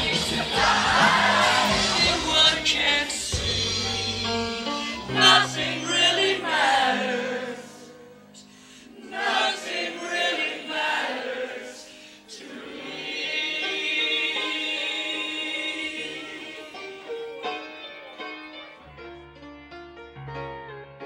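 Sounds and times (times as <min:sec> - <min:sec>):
young voices singing together: 0:00.0 - 0:04.2, 0:04.9 - 0:08.1, 0:08.8 - 0:17.2.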